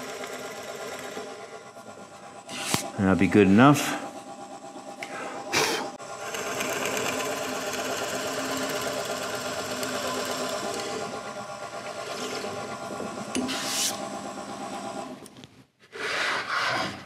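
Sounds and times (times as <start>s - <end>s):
drill press boring wood: 0.0s - 2.8s, 6.0s - 15.2s.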